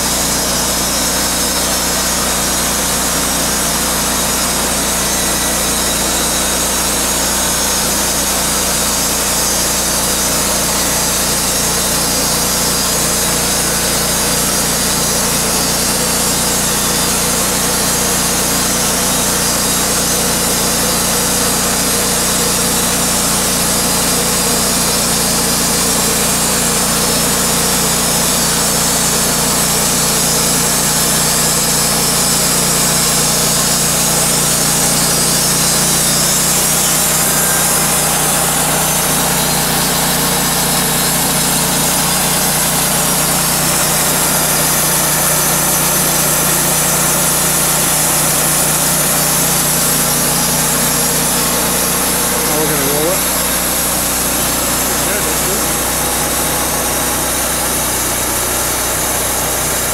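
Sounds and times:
sawmill engine running under load: 0.0 - 59.9
band blade hissing through wood: 48.2 - 57.7.

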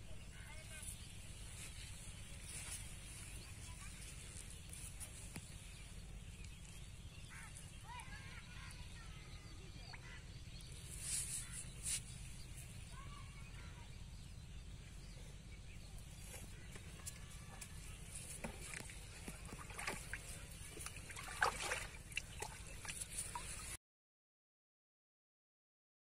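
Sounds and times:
low steady rumble: 0.0 - 23.7
hands splashing in muddy water: 18.3 - 23.8.

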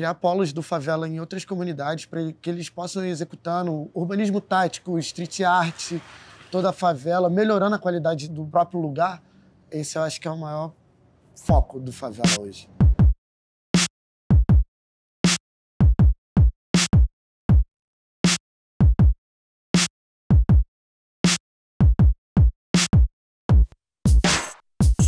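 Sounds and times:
electronic beat with cymbal hiss: 11.4 - 11.7, 23.6 - 25.0
deep drum machine kicks: 12.8 - 13.2, 14.3 - 14.6, 15.8 - 17.6, 18.8 - 19.2, 20.3 - 20.6, 21.8 - 25.0.

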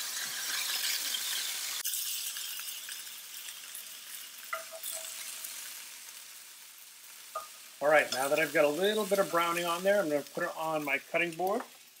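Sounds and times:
meat sizzling in a skillet: 0.0 - 12.0
metal tongs clinking on pan: 0.4 - 5.4, 7.3 - 8.5.

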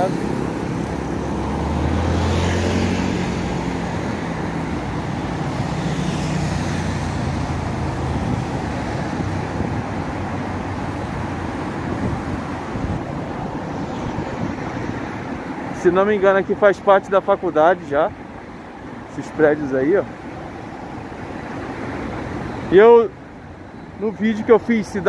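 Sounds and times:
heavy vehicle engine hum: 0.0 - 15.8
cars passing: 0.0 - 25.0.

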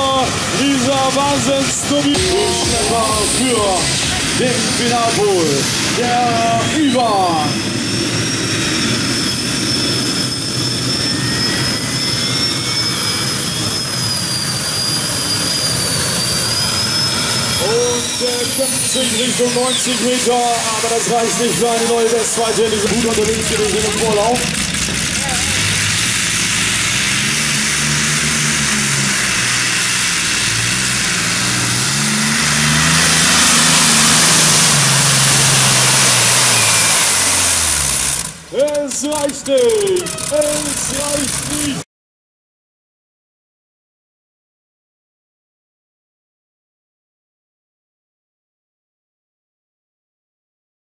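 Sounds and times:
tractor engine at full power: 0.0 - 41.8
high engine whine: 0.0 - 41.9.

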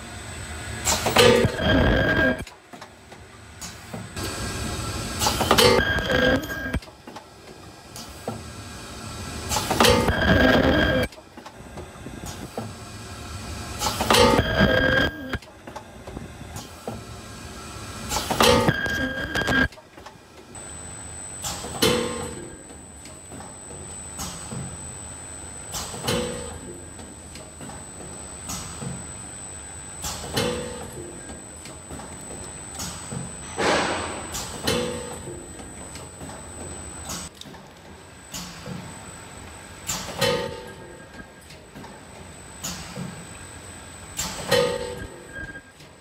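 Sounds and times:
packaging machine mechanical noise: 0.0 - 46.0
high whine: 0.4 - 2.4, 4.2 - 6.8, 9.1 - 11.1, 13.0 - 15.4, 20.6 - 37.3
pneumatic clamps clacking: 25.7 - 27.8, 30.0 - 32.2, 32.8 - 36.4, 39.8 - 42.0, 44.2 - 45.2.

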